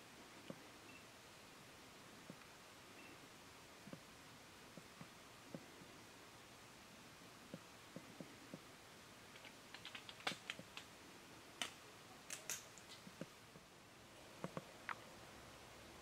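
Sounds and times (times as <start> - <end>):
irregular clicks and taps: 9.3 - 10.9.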